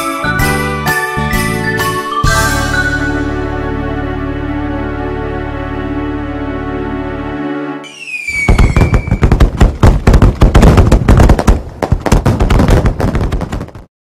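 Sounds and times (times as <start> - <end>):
rocket whistle: 7.8 - 9.3
firework bangs and crackles: 7.9 - 13.9.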